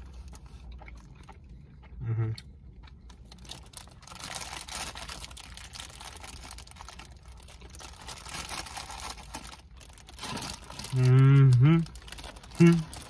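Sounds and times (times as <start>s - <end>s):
person humming: 2.0s - 2.4s, 10.9s - 11.9s, 12.6s - 12.9s
plastic wrappers crinkling: 3.1s - 13.0s.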